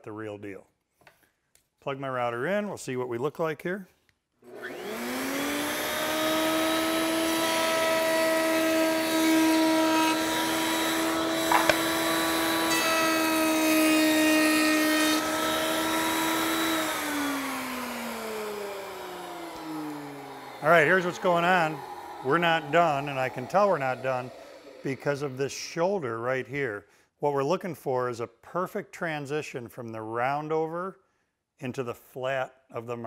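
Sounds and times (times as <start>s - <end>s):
router motor whine: 4.5s - 25.6s
router bit cutting wood: 4.5s - 25.8s.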